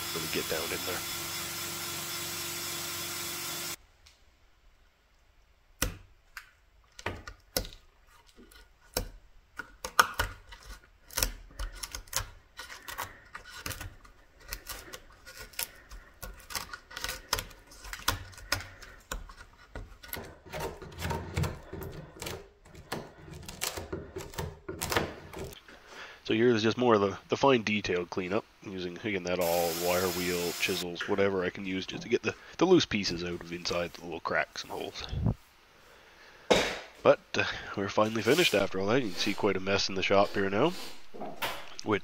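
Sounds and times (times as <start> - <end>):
wire wheel drill spinning on wood: 0.0 - 3.8
chisel clicking and scraping wood: 7.0 - 25.6.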